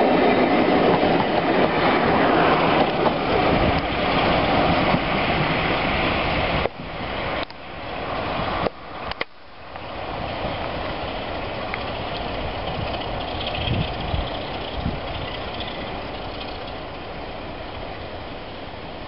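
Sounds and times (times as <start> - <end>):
diesel locomotive engine thrashing: 10.8 - 17.2.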